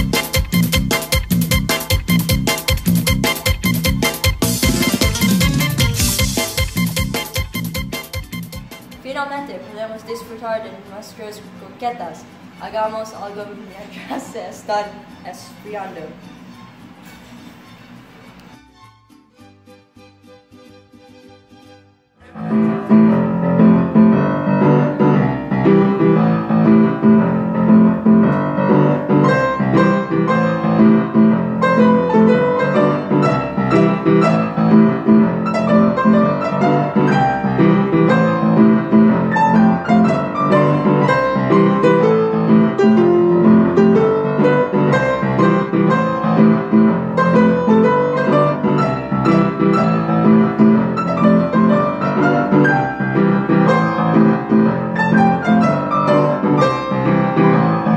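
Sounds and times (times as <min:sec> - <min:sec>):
upright piano chords and melody: 0:00.0 - 0:09.0, 0:22.2 - 0:57.9.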